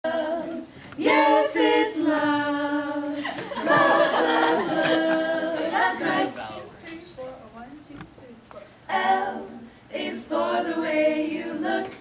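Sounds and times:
women singing a cappella: 0.0s - 6.5s, 8.9s - 12.0s.

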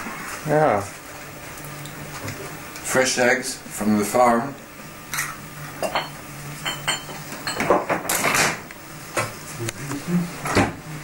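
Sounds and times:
glasses and dishes clinking: 5.1s - 8.2s.

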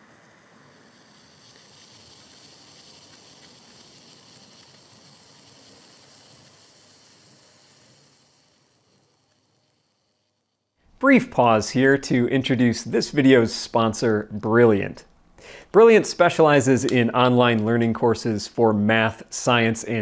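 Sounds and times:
sparkler powder sizzling and crackling: 0.0s - 10.8s, 15.9s - 20.0s.

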